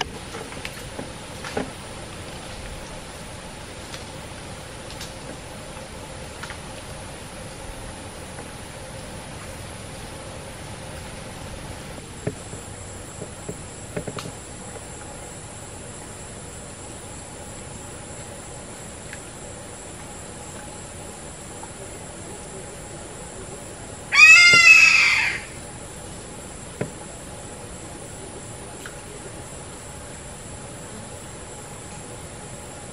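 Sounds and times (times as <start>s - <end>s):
faint ticks and rustles: 0.0s - 23.8s
insects droning: 0.0s - 32.9s
animal chattering call: 24.1s - 25.6s.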